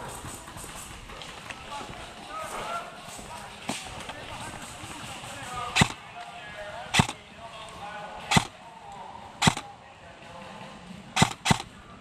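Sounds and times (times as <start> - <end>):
airsoft rifle shots: 5.7 - 6.1, 6.9 - 7.2, 8.2 - 8.6, 9.4 - 9.7, 11.2 - 11.8.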